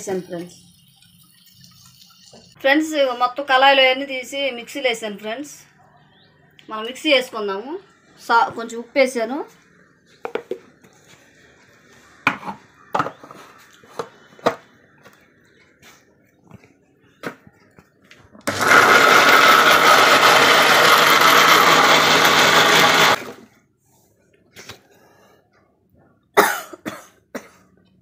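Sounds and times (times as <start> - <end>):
mixer grinder running: 18.4 - 23.5.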